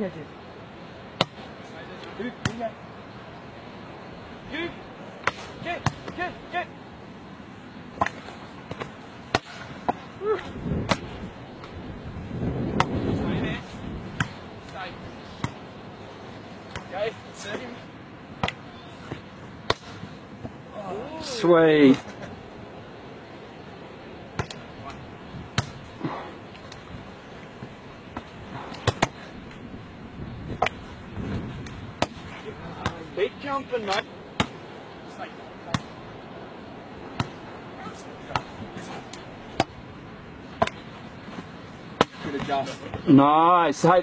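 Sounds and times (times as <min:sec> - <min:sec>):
volleyball slaps: 0:01.2 - 0:01.4, 0:02.4 - 0:02.6, 0:05.2 - 0:06.2, 0:08.0 - 0:11.7, 0:12.7 - 0:13.0, 0:18.4 - 0:20.6, 0:24.3 - 0:24.6, 0:25.5 - 0:25.9, 0:28.1 - 0:29.3, 0:30.5 - 0:30.9, 0:31.6 - 0:33.0, 0:33.8 - 0:34.6, 0:35.7 - 0:36.0, 0:37.1 - 0:39.8, 0:40.6 - 0:40.8, 0:42.0 - 0:43.0
volleyball struck by hands: 0:08.0 - 0:10.0, 0:12.7 - 0:13.0, 0:18.4 - 0:20.6, 0:25.5 - 0:25.8, 0:28.1 - 0:29.2, 0:30.5 - 0:30.8, 0:31.6 - 0:32.2, 0:37.1 - 0:37.4, 0:42.0 - 0:43.0.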